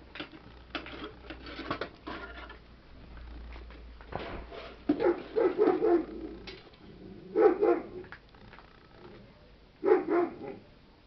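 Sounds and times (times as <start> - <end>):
dog barking: 5.0 - 6.2, 7.3 - 8.0, 9.8 - 10.7.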